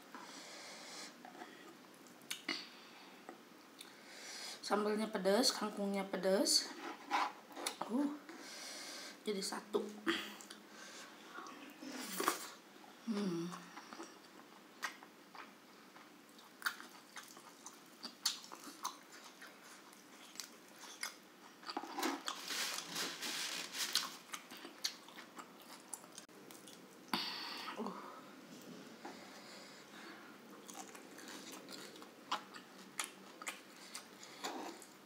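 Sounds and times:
close-up chewing and mouth smacks: 13.6 - 22.4, 24.0 - 27.1, 30.5 - 35.0.

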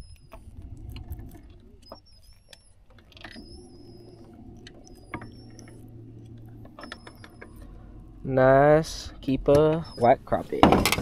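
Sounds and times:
low steady hum: 0.0 - 11.0.

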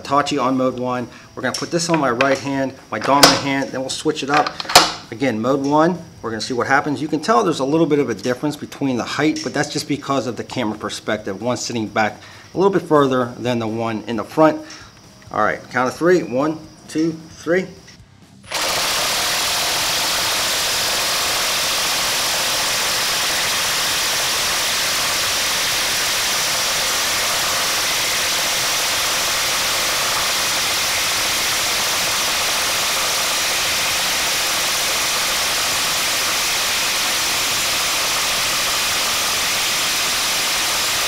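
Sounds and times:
impact drivers hammering: 1.6 - 3.6, 4.4 - 5.0
screws driven into wood: 18.5 - 41.0.

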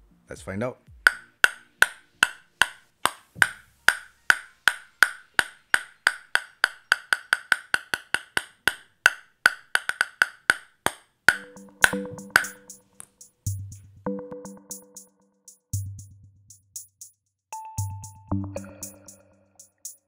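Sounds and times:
table tennis ball bouncing on blade: 1.0 - 13.5.

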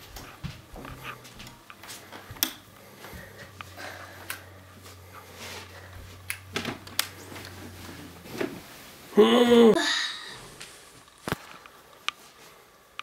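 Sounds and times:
low steady hum: 0.0 - 13.0
knocks and rustles: 6.3 - 8.8.

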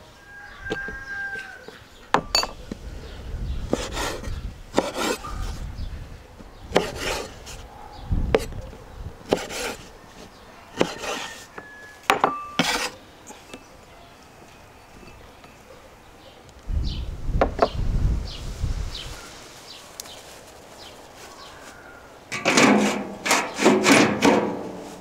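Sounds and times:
rubbing and handling sounds: 3.7 - 5.7, 6.7 - 7.7, 9.2 - 11.6, 12.3 - 13.0.

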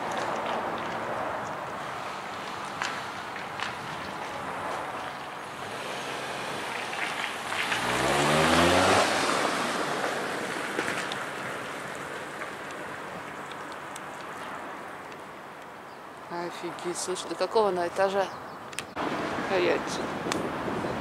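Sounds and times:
vehicle driving past: 4.6 - 11.2.

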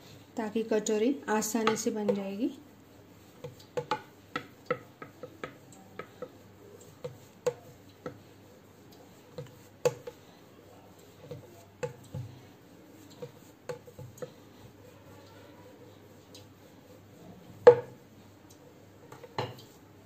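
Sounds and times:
rolling pin knocking on board: 3.4 - 6.4, 17.6 - 18.0.

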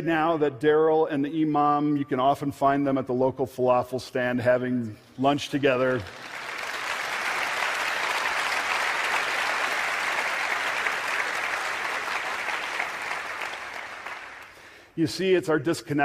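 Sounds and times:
audience applauding: 5.8 - 14.8.

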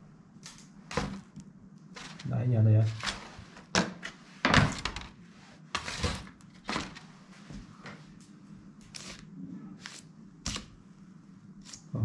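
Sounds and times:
paper rustling: 2.0 - 3.6.

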